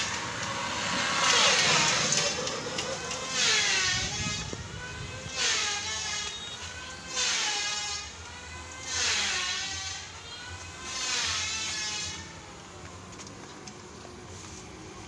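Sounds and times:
engine rising and falling in pitch: 0.0s - 11.0s.

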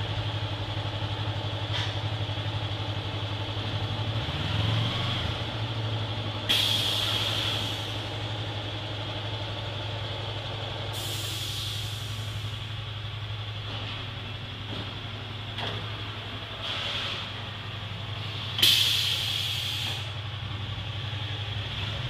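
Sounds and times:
sharp air hisses: 6.5s - 8.0s, 11.0s - 12.6s, 18.6s - 20.2s.

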